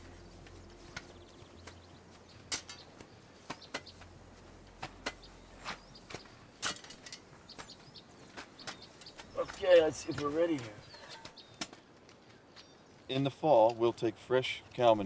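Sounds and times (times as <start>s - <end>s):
shovels scraping soil and stones: 0.0s - 11.8s.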